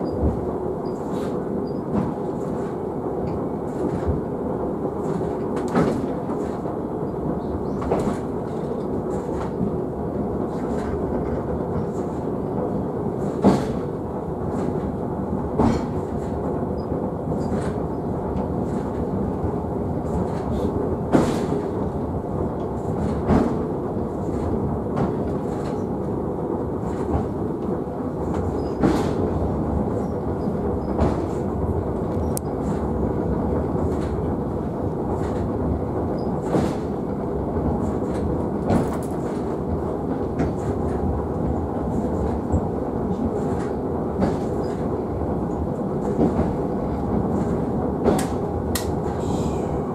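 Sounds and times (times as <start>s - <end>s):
funicular car rumbling: 0.0s - 49.9s
sharp knock of rails: 15.6s - 16.3s, 48.0s - 49.2s.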